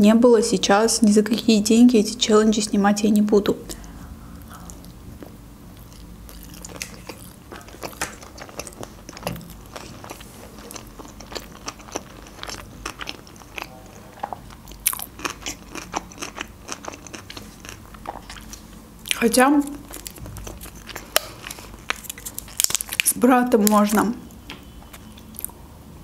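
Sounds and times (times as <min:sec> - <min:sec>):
person chewing food: 0:03.7 - 0:23.2, 0:24.4 - 0:25.6.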